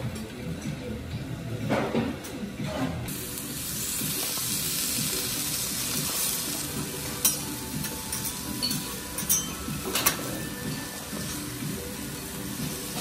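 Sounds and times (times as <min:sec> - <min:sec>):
vegetables sizzling on griddle: 0:03.1 - 0:13.0.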